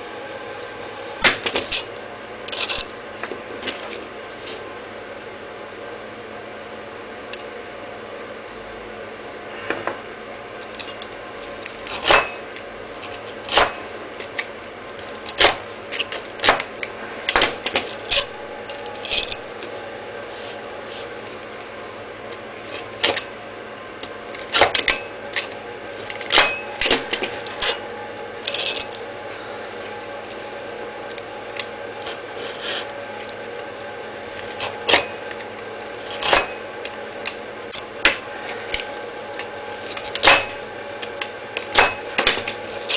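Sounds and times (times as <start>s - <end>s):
faint hum: 0.0s - 42.9s
metal blades scraping flap disc: 0.5s - 3.0s, 10.7s - 21.7s, 22.3s - 42.9s.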